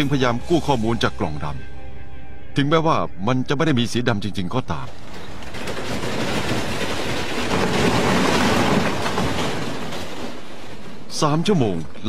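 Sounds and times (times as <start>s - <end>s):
metal grinding and screeching: 4.8s - 12.0s.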